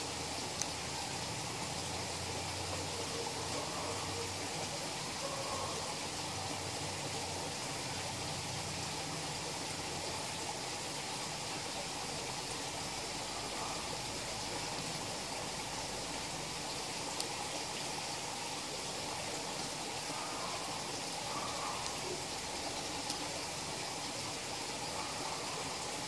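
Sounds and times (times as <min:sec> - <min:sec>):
water rushing into pond: 0:00.0 - 0:26.0
faint ticks: 0:00.3 - 0:04.3, 0:17.0 - 0:17.9, 0:21.1 - 0:23.7.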